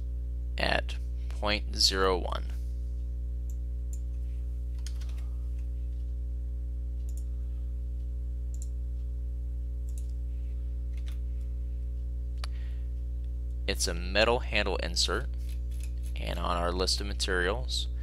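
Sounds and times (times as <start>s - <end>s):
low electrical hum: 0.0s - 18.0s
computer mouse clicking: 4.8s - 5.2s, 7.1s - 7.3s, 9.9s - 10.2s.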